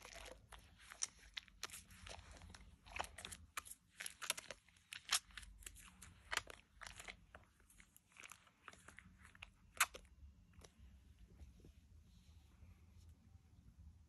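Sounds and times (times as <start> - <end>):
soap lather crackling and popping: 0.0 - 10.9.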